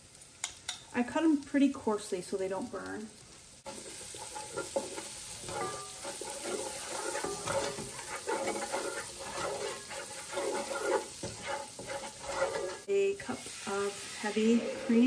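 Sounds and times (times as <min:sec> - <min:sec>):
garlic and butter sizzling in pan: 0:00.0 - 0:15.0
wooden spoon scraping a pan: 0:03.6 - 0:15.0.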